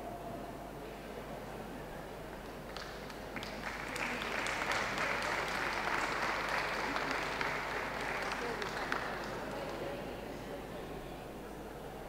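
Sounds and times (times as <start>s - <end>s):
audience applauding: 2.4s - 10.1s.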